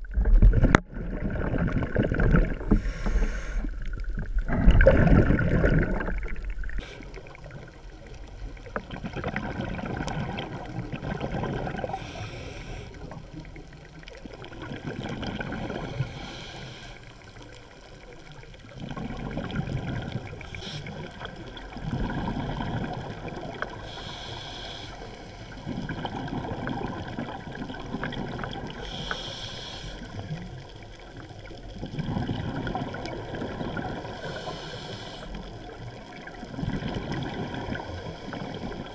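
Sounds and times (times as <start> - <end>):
exhaled bubbles underwater: 0.0 - 38.9
regulator hiss: 12.0 - 13.0, 23.8 - 25.2, 28.8 - 30.0, 34.2 - 35.4.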